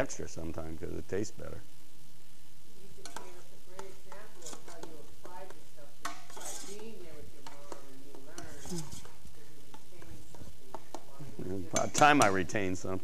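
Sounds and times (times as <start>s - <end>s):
spoon scraping metal pot: 3.0s - 12.6s.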